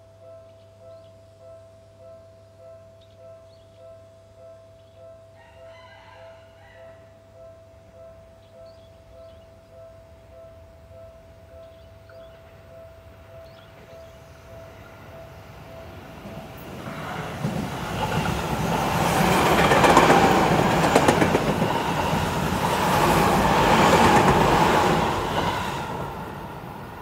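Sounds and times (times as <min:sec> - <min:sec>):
level-crossing warning bell: 0:00.0 - 0:27.0
electric train passing: 0:07.4 - 0:27.0
wheels clicking over rail joints: 0:14.8 - 0:27.0.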